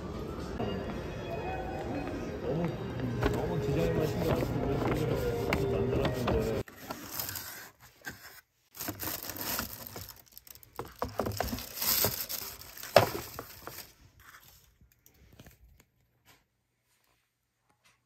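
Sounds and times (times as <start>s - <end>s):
wrapping crinkling and rustling: 6.6s - 15.9s.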